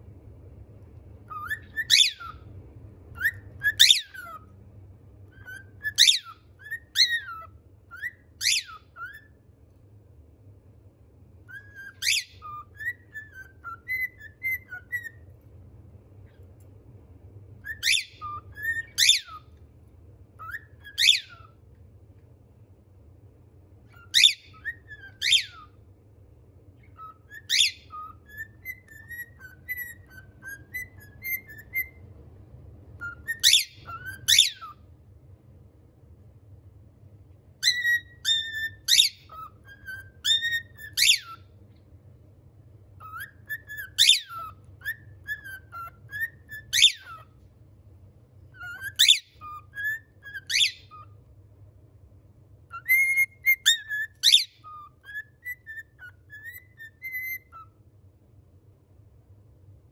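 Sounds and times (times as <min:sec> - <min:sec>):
cockatiel whistling: 0:01.2 - 0:04.6, 0:05.2 - 0:09.6, 0:11.4 - 0:15.5, 0:17.6 - 0:19.7, 0:20.3 - 0:21.8, 0:23.8 - 0:25.9, 0:26.7 - 0:32.2, 0:32.9 - 0:34.9, 0:37.6 - 0:41.6, 0:43.0 - 0:47.4, 0:48.5 - 0:51.4, 0:52.6 - 0:57.9.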